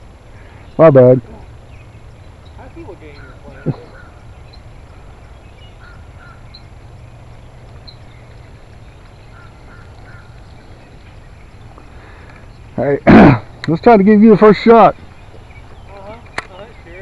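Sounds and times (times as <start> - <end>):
steady low rumble: 0.0 - 13.7
faint short bird calls: 3.1 - 6.7, 9.1 - 11.0.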